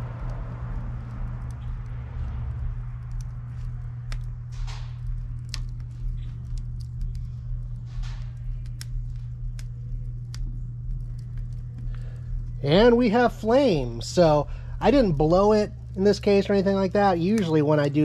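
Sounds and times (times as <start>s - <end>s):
steady low hum: 0.0s - 18.0s
wood fire crackling and popping: 0.0s - 18.0s.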